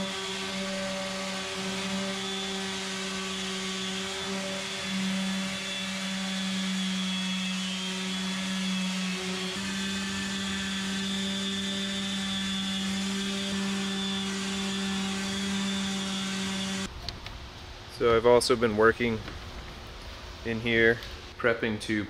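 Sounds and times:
orbital sander humming: 0.0s - 16.9s.

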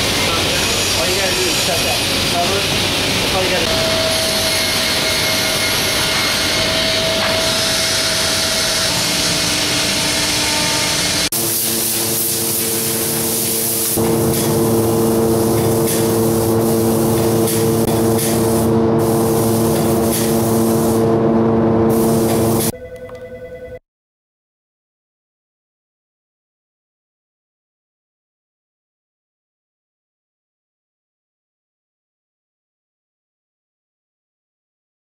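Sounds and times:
steady hum: 0.0s - 22.7s
woodshop machine noise: 0.0s - 22.7s
spray gun hissing: 11.0s - 21.1s, 21.9s - 22.7s.

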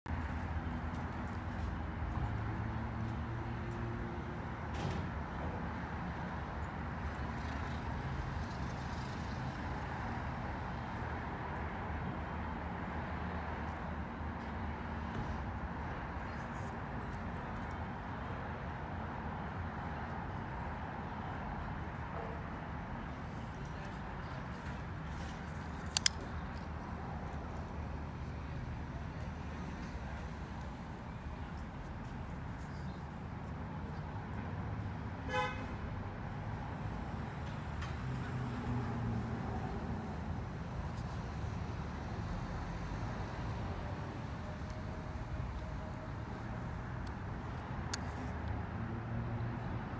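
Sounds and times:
knife blade clicking open: 25.8s - 26.2s.

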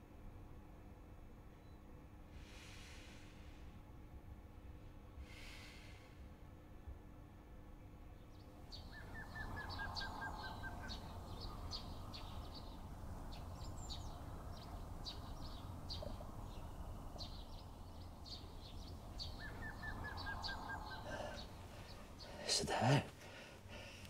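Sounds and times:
steady low rumble: 2.4s - 24.0s
small birds chirping: 8.0s - 24.0s.

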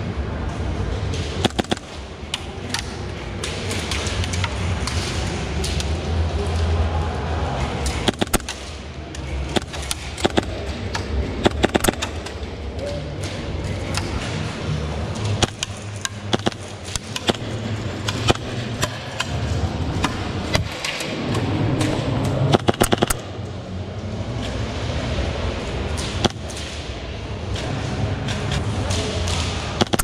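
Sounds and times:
steady low rumble: 0.0s - 30.0s
airsoft gunshots: 1.4s - 1.9s, 8.0s - 8.6s, 9.5s - 10.6s, 11.4s - 12.1s, 16.3s - 17.5s, 22.5s - 23.2s
rapid full-auto burst: 1.4s - 1.9s, 8.1s - 8.5s, 11.4s - 12.1s, 22.5s - 23.2s.

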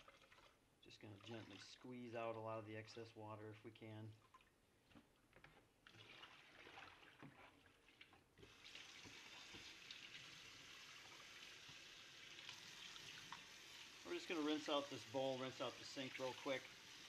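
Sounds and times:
water sloshing into sink: 0.0s - 2.1s, 4.1s - 17.0s
faucet running: 8.4s - 17.0s.

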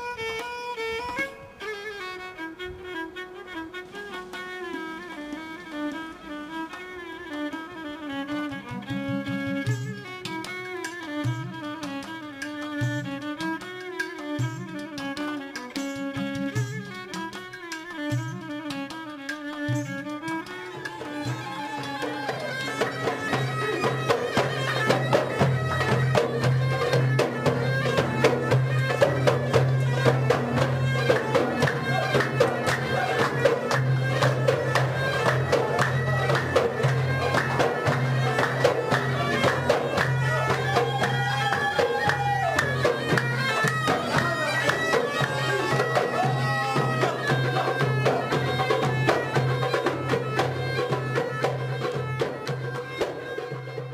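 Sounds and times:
bagpipe melody with drone: 17.6s - 53.9s.

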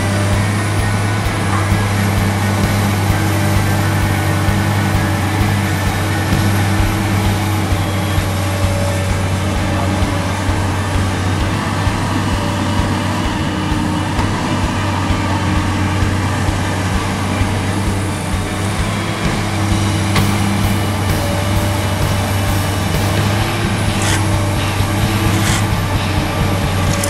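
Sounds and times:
excavator diesel engine running: 0.0s - 27.0s.

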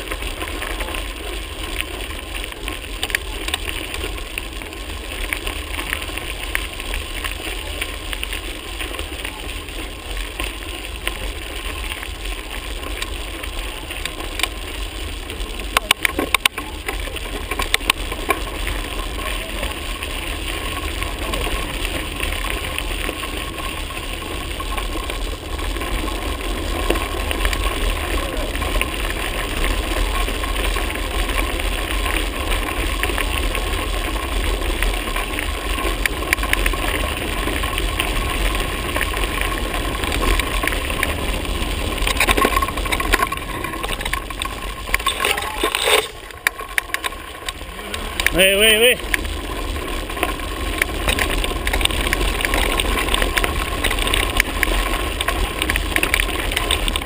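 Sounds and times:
bike tyres crunching on gravel: 0.0s - 57.0s
wind rumbling on microphone: 0.0s - 57.0s
sharp clicks and knocks: 42.0s - 47.6s.

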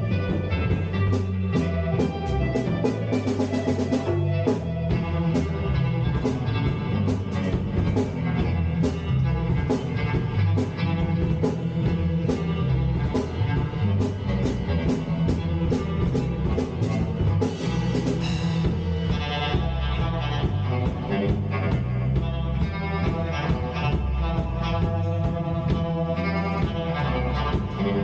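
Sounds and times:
live instrumental rock band: 0.0s - 28.0s.

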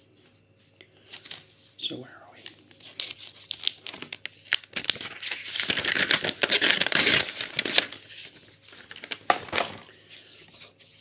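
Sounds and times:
plastic film peeling: 2.7s - 9.9s.

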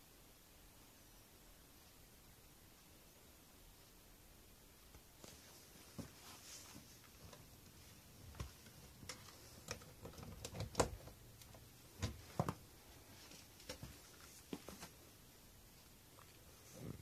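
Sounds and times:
irregular clicks and light knocks: 4.9s - 15.0s.

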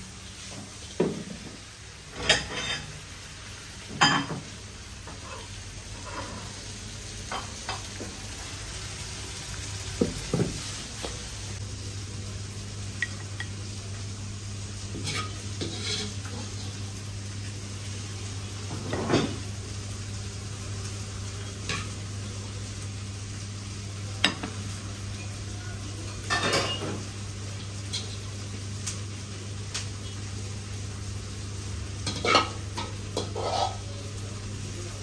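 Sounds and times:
stir-fry sizzling in a pan: 0.0s - 35.0s
metal ladle scraping a pan: 15.0s - 16.7s, 33.2s - 33.9s.

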